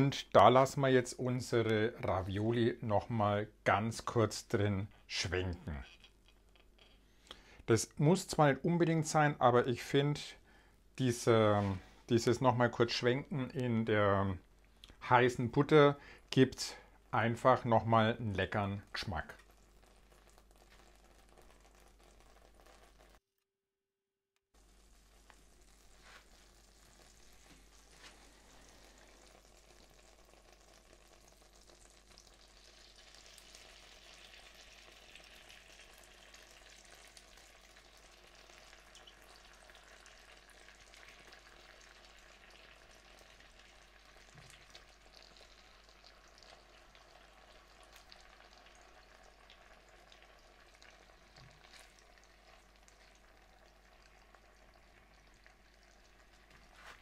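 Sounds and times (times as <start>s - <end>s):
butter sizzling in a pan: 19.4s - 23.2s, 24.6s - 57.0s.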